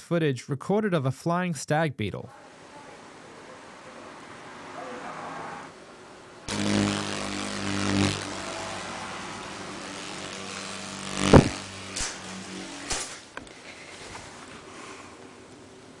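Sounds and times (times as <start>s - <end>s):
beetle wings buzzing: 6.5s - 13.5s.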